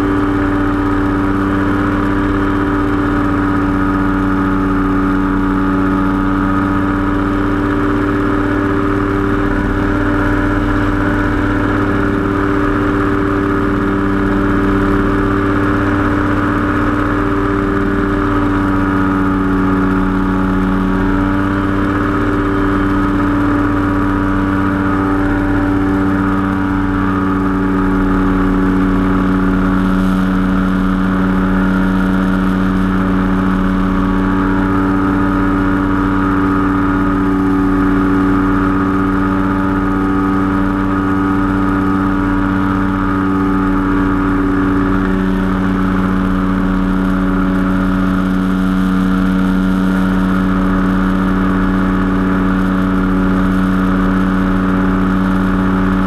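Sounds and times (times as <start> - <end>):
engine and propeller droning: 0.0 - 56.0.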